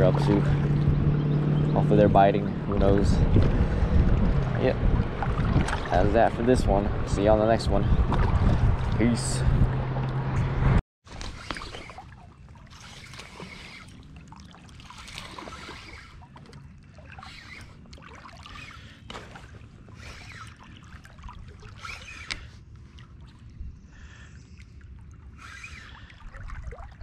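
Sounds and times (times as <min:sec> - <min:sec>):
low rumble: 0:00.0 - 0:10.8
water splashing against a kayak: 0:03.3 - 0:06.2, 0:11.1 - 0:27.0.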